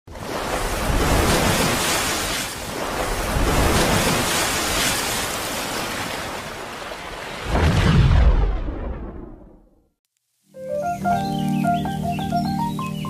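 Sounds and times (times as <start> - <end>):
rushing water whoosh: 0.1 - 9.6.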